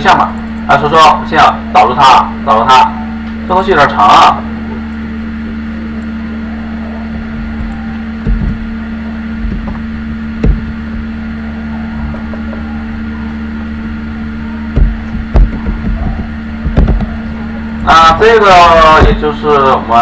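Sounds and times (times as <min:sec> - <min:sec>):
electrical hum and buzz: 0:00.0 - 0:20.0.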